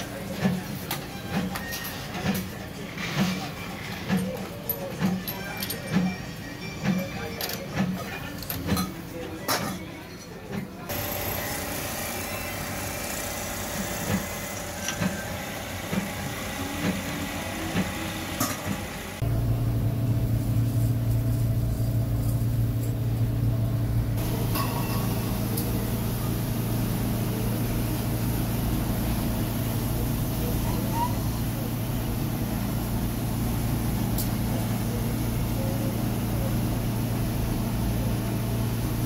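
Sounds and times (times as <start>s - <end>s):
workshop background noise: 0.0s - 39.0s
loud low machine hum: 10.9s - 39.0s.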